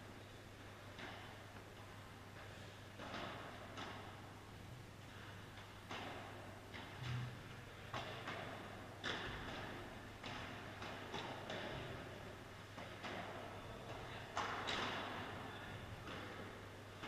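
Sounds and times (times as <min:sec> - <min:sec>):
balls bouncing off court and glass: 0:03.0 - 0:04.2, 0:05.9 - 0:07.2, 0:07.9 - 0:17.0
rackets striking balls: 0:03.0 - 0:04.4, 0:05.1 - 0:17.0.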